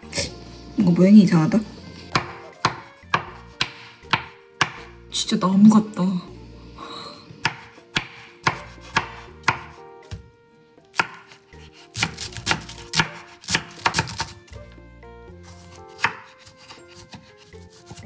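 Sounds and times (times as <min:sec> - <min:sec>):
knife chopping vegetables on board: 0:02.1 - 0:04.9, 0:07.4 - 0:10.3, 0:10.9 - 0:14.6, 0:15.4 - 0:18.0.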